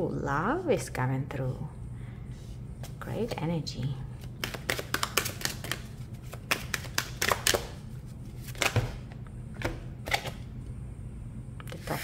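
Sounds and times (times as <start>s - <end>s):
cards being shuffled: 4.2s - 9.0s.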